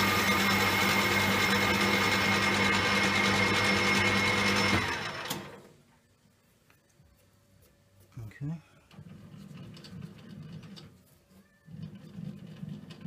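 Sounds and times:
lathe spinning down: 0:00.0 - 0:05.6
metal lathe whining: 0:00.0 - 0:05.6.

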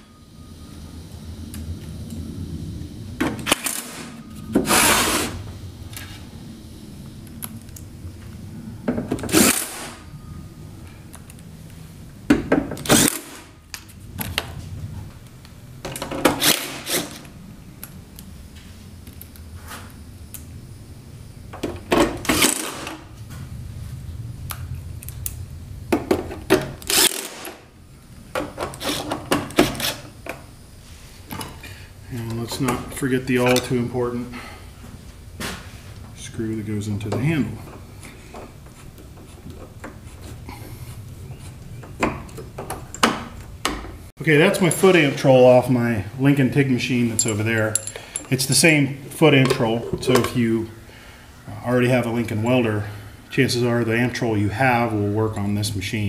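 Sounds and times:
cordless drill driving screws: 0:26.9 - 0:27.5.

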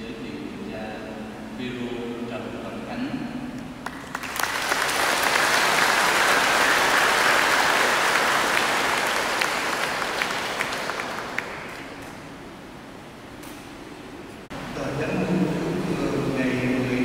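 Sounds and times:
crowd applauding: 0:03.8 - 0:12.1.

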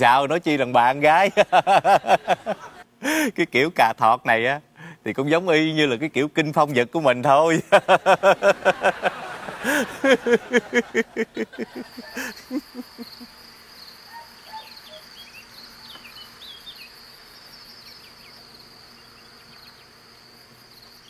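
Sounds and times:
crickets chirping: 0:00.4 - 0:03.3, 0:04.2 - 0:21.0
man laughing: 0:01.2 - 0:03.4, 0:07.5 - 0:13.4.

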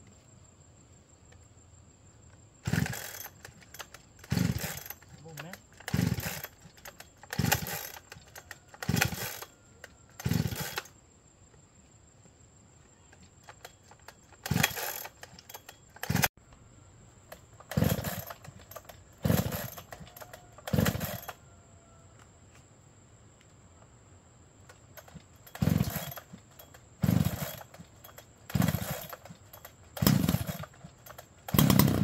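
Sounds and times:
chainsaw starter cord yanks: 0:02.6 - 0:10.9, 0:13.1 - 0:16.3, 0:17.3 - 0:21.4, 0:24.6 - 0:32.0.

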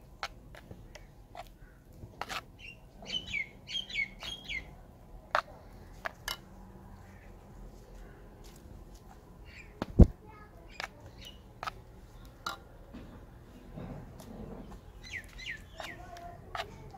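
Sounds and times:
bird chirping: 0:02.6 - 0:04.8, 0:09.4 - 0:09.8, 0:10.7 - 0:11.5, 0:14.5 - 0:16.2.

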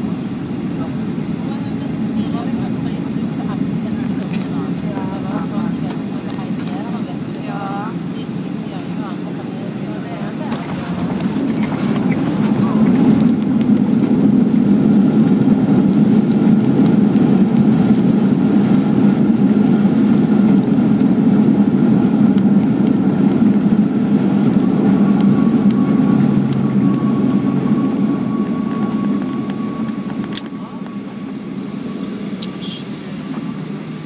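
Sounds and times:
jet engines rushing: 0:00.0 - 0:34.0
wheel rumble on runway: 0:08.8 - 0:34.0.

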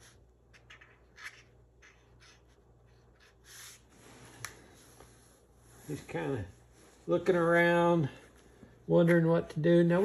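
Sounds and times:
marker pen scratching on cardboard: 0:00.0 - 0:03.8.

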